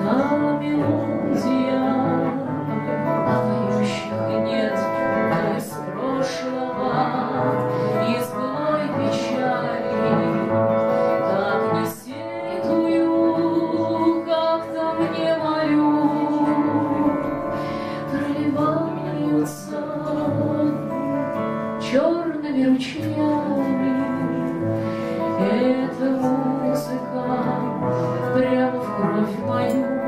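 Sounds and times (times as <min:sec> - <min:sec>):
acoustic guitar: 0:00.0 - 0:30.0
woman singing: 0:00.0 - 0:30.0.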